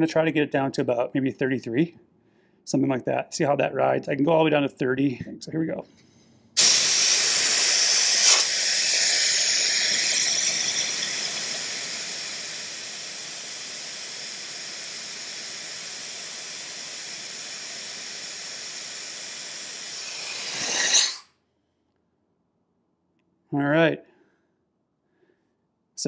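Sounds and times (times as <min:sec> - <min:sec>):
compressed air hissing from tires: 0:06.6 - 0:21.2.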